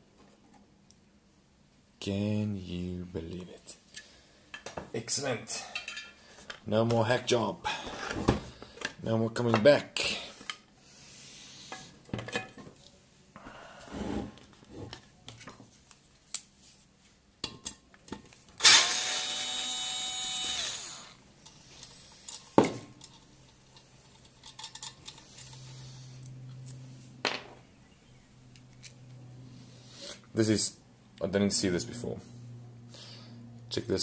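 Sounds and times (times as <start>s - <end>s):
electric screwdriver motor whine: 18.6s - 21.2s
tools and parts clicking: 20.4s - 26.8s.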